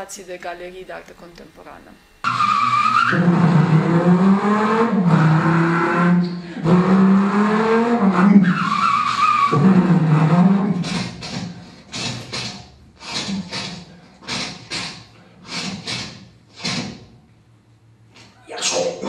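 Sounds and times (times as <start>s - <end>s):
sustained sliding tone: 1.2s - 14.9s.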